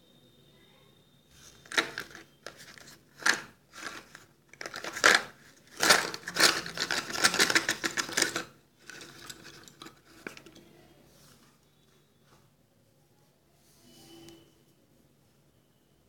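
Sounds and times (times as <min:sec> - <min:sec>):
pencils clattering onto carpet: 0:01.6 - 0:10.6.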